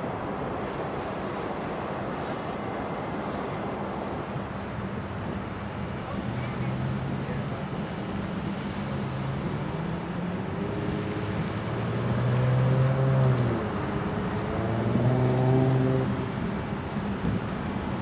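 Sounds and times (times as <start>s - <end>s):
engine with changing pitch: 9.0s - 16.4s.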